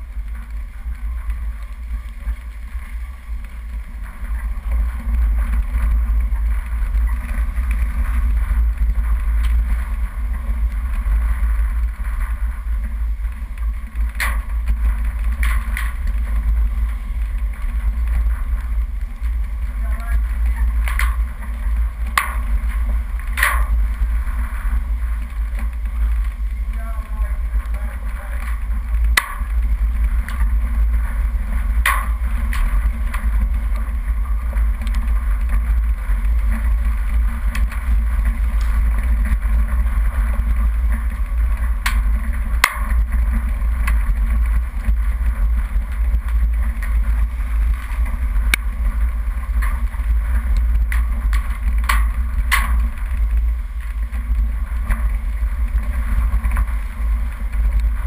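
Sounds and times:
off-road vehicle engine rumble: 0:00.0 - 0:58.0
tyres on dirt track: 0:00.0 - 0:58.0
wind: 0:00.0 - 0:58.0
sharp knocks and clicks: 0:22.1 - 0:22.6, 0:31.8 - 0:32.7.

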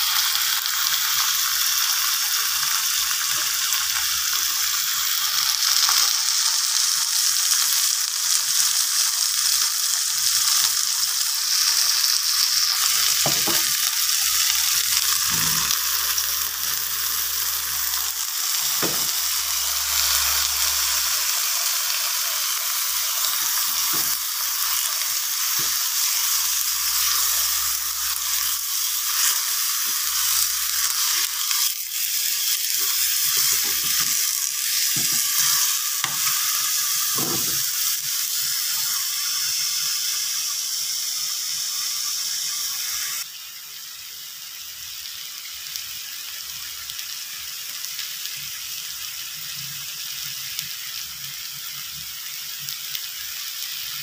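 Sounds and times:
food sizzling in a wok: 0:00.0 - 0:54.0.

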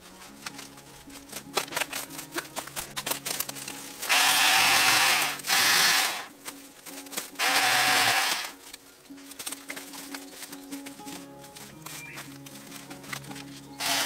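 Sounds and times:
chainsaw cutting bamboo: 0:04.0 - 0:06.3, 0:07.4 - 0:08.6, 0:13.8 - 0:14.0
light rustling and clicks: 0:08.6 - 0:13.7.

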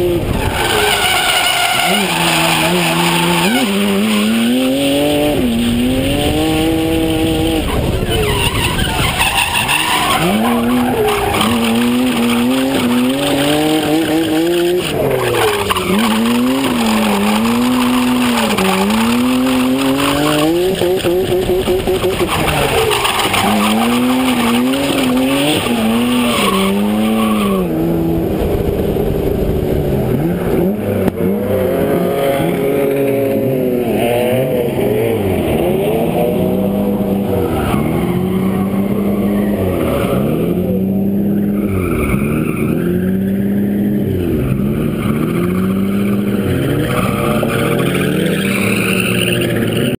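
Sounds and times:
car engine revving: 0:00.0 - 0:50.0
tyres squealing: 0:00.4 - 0:27.7, 0:41.3 - 0:50.0.

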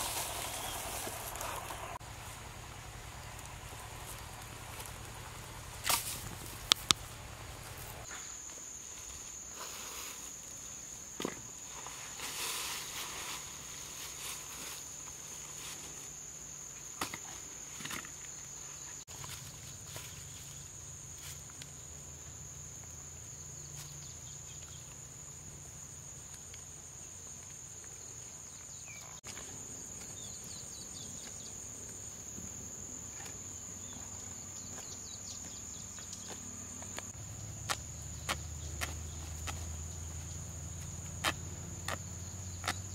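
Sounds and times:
dry leaves rustling: 0:00.0 - 0:08.1
light clicks of bamboo leaves: 0:00.0 - 0:10.5.

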